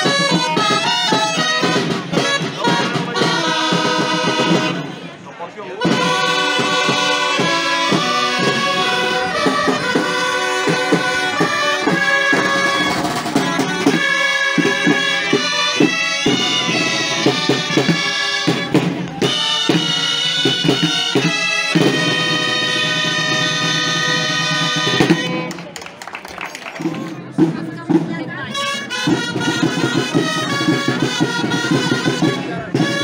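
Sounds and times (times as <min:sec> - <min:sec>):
drum playing: 0:00.0 - 0:05.0, 0:05.8 - 0:25.8, 0:26.7 - 0:33.0
street band of reedy woodwinds: 0:00.0 - 0:33.0.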